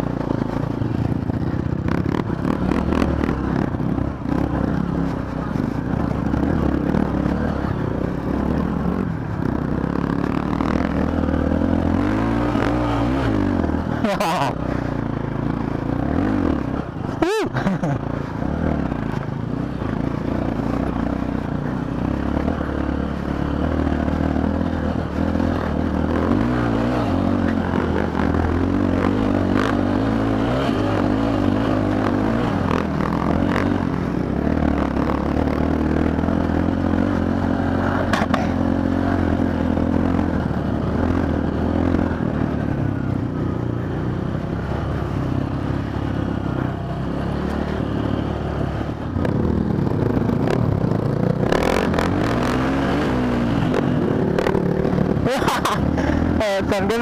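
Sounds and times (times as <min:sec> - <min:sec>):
motorcycle engine revving: 0:00.0 - 0:57.0
sharp knocks over rough ground: 0:38.0 - 0:38.6.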